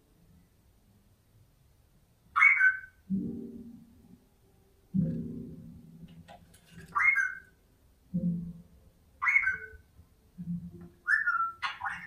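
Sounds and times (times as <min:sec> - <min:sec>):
parrot whistled calls: 0:02.4 - 0:03.0, 0:07.0 - 0:07.5, 0:09.2 - 0:09.8, 0:11.0 - 0:12.0.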